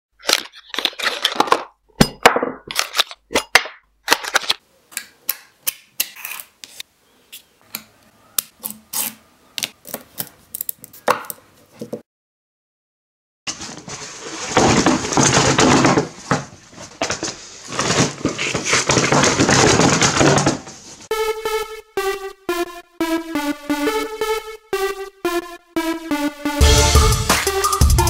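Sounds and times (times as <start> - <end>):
cardboard box rustling: 13.5 - 20.3.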